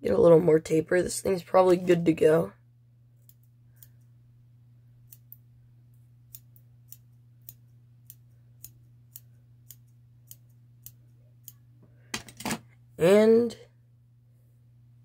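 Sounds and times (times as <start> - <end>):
faint steady low hum: 0.0 - 15.0
small scissors snipping fibers: 3.2 - 4.2, 5.0 - 11.6.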